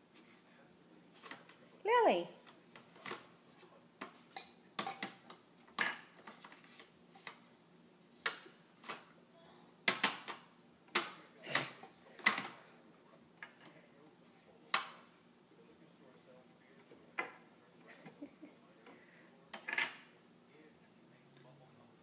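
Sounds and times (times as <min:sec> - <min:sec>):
plastic cups clacking on table: 0:09.8 - 0:11.2, 0:19.5 - 0:20.1.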